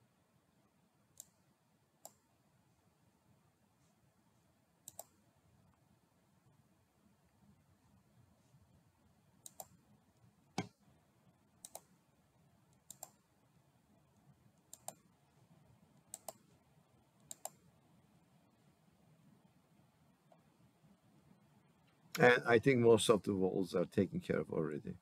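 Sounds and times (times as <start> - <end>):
low room hiss: 0.0 - 25.0
computer mouse clicks: 1.1 - 1.4, 2.0 - 2.3, 4.8 - 5.2, 9.4 - 9.8, 11.6 - 11.9, 12.7 - 13.2, 14.2 - 15.1, 16.1 - 16.6, 17.2 - 17.7.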